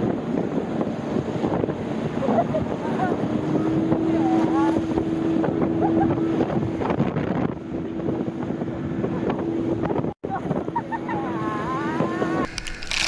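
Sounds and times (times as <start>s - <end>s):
boat engine hum: 0.0s - 13.0s
wind buffeting microphone: 0.0s - 13.0s
water rushing: 12.3s - 13.0s.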